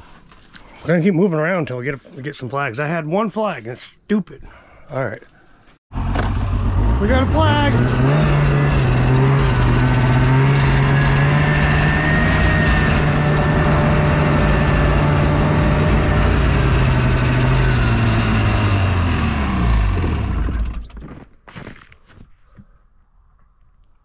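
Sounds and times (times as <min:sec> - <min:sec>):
snowmobile engine running: 0:06.0 - 0:20.8.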